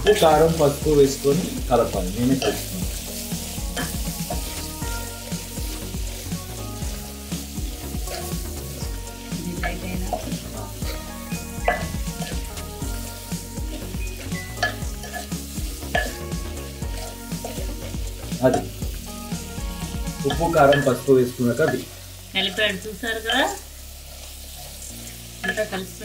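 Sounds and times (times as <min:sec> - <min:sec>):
tripe sizzling in a pot: 0:00.0 - 0:26.0
spatula scraping and knocking pot: 0:13.6 - 0:18.7.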